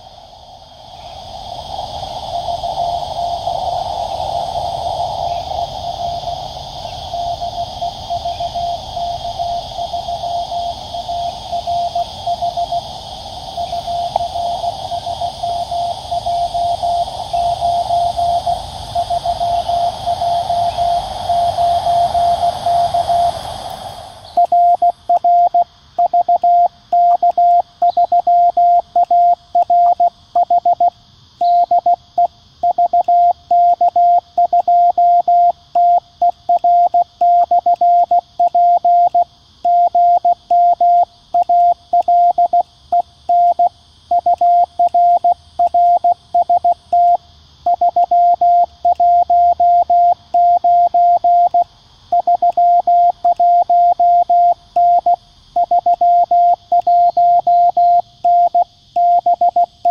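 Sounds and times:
faint steady hiss: 0.0s - 59.9s
morse code tone: 43.3s - 51.6s, 52.2s - 59.9s.

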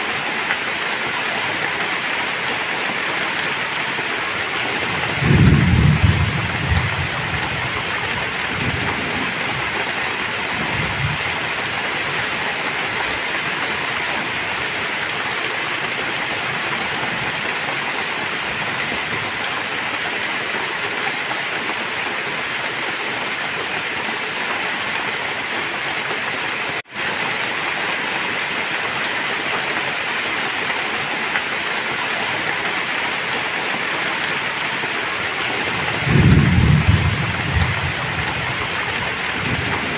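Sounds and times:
heavy rain pouring: 0.0s - 39.9s
low rumble of thunder: 4.8s - 9.8s, 35.7s - 39.9s.

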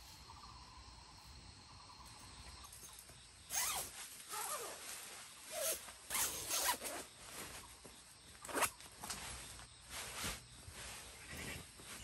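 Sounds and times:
sleeping bag zipper and fabric swishes: 3.5s - 7.6s, 8.4s - 12.0s.

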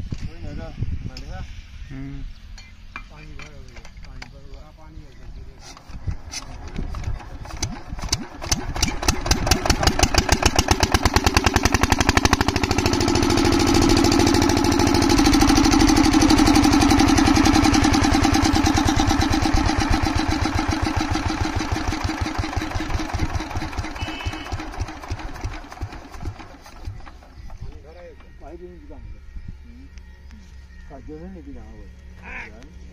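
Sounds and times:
diesel pump engine running: 5.5s - 29.3s.

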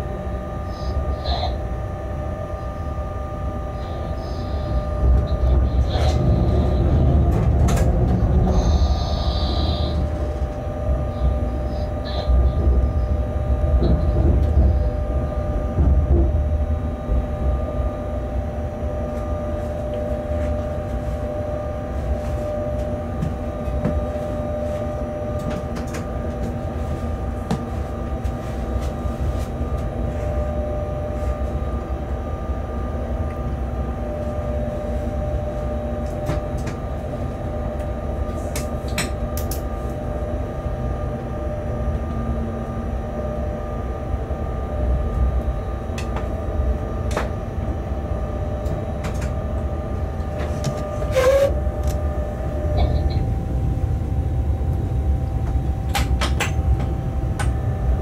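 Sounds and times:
constant hum: 0.0s - 58.0s
locomotive low rumble: 0.0s - 58.0s.

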